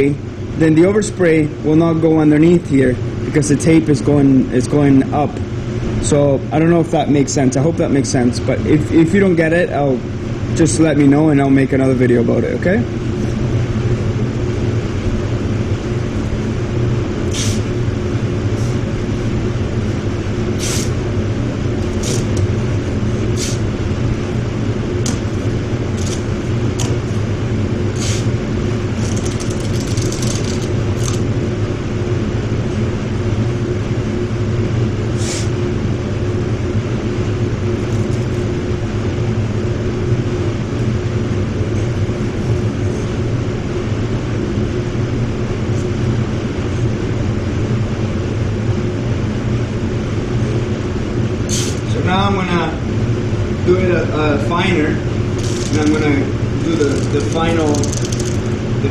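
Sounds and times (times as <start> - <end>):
ventilation hum: 0.0 - 58.9
masking tape ripping off roll: 21.8 - 22.4, 55.4 - 58.5.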